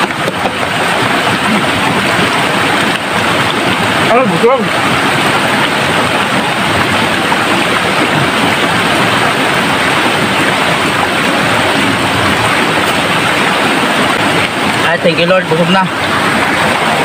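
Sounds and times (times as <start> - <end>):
stream rushing over rocks: 0.0 - 17.0.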